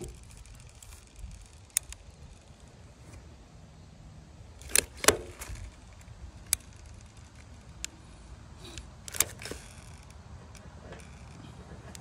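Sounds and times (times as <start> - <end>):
caulking gun clicks: 4.6 - 7.9.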